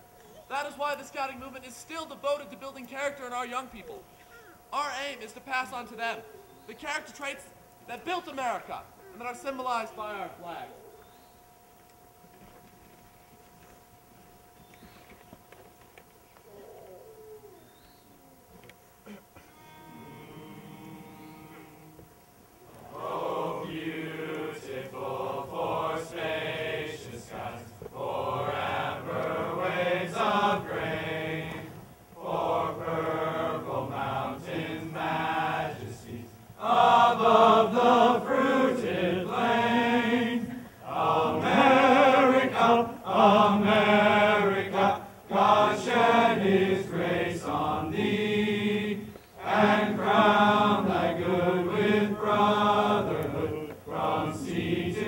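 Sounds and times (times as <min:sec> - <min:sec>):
male choir singing: 0:19.6 - 0:22.0, 0:22.7 - 0:55.0.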